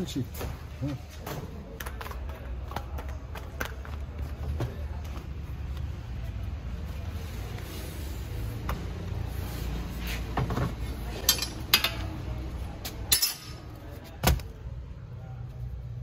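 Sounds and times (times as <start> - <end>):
tools clinking and knocking: 11.2 - 12.2, 13.0 - 13.7.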